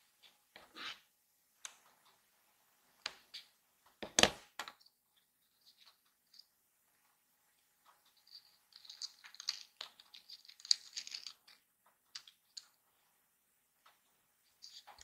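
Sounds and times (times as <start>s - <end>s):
paper rustling: 8.1s - 11.6s.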